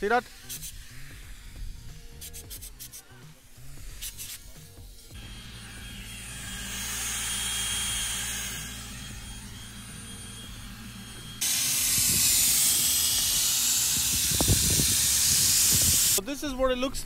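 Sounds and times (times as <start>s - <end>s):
spray gun hissing: 0.0s - 9.0s, 11.3s - 16.2s
low machine hum: 5.2s - 16.2s.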